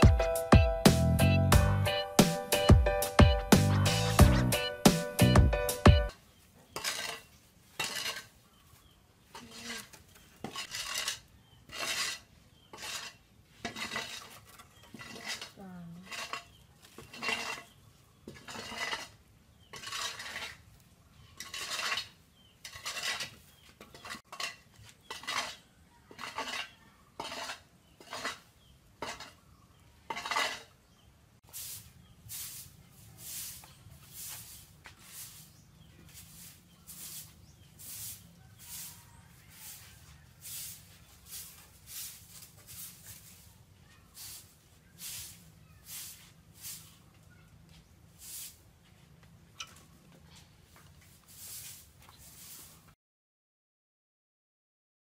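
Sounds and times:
rasping scraping strokes: 6.7 - 8.5, 9.3 - 29.4, 30.0 - 30.8, 31.4 - 47.0, 50.3 - 52.9.

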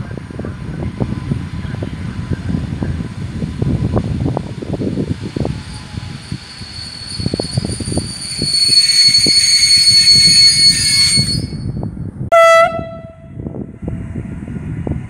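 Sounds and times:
low rumble of moving train: 0.0 - 15.0
train high whine: 0.0 - 15.0
train horn blast: 12.3 - 13.4.

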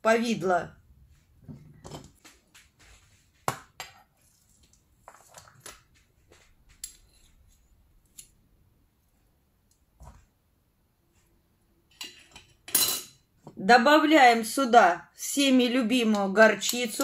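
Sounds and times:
metal spoon clinking and scraping: 11.9 - 13.2.

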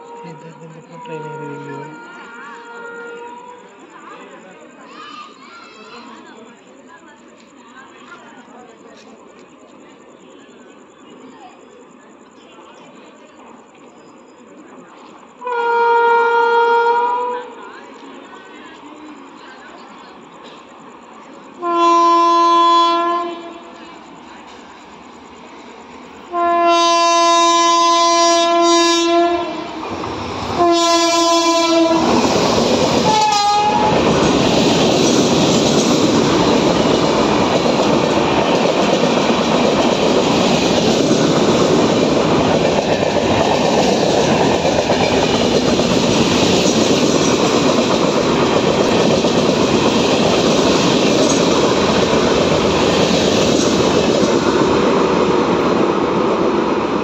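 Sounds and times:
locomotive horn blasts: 0.0 - 3.5, 15.4 - 17.4, 21.6 - 23.6, 26.3 - 29.7, 30.6 - 32.0, 33.1 - 34.0
train rushing and clattering: 17.5 - 57.0.

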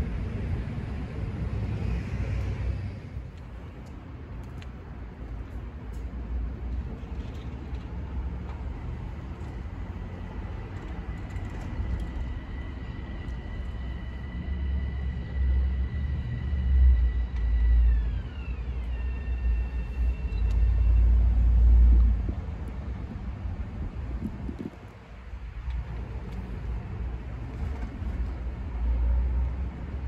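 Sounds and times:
road traffic: 0.0 - 30.0
train rumble: 0.0 - 30.0
high whine sliding down in pitch: 12.5 - 22.0.

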